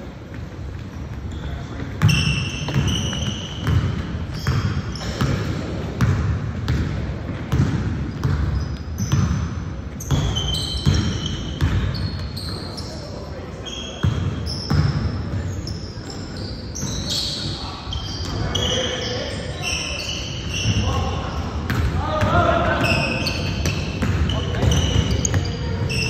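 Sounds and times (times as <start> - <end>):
sneakers squeaking: 0.0 - 26.0
basketball bouncing on wood floor: 2.0 - 9.4, 10.1 - 12.0.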